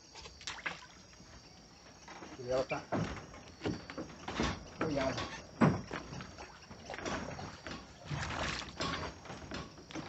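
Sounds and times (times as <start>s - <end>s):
water splashing and sloshing: 0.0s - 10.0s.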